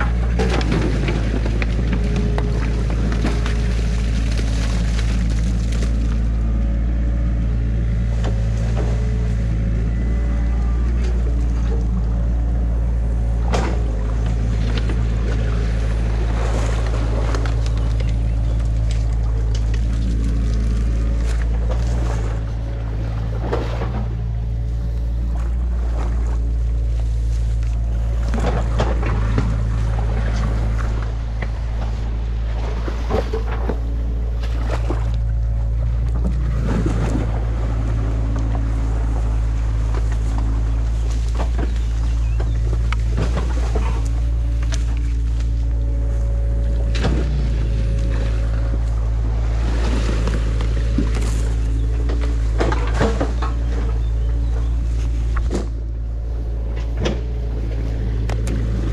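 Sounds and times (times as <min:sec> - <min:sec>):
sticks snapping and rustling: 0:00.0 - 0:06.3, 0:16.5 - 0:22.5, 0:38.1 - 0:49.0, 0:49.6 - 0:55.9, 0:56.6 - 0:58.9
diesel engine idling: 0:00.0 - 0:58.9.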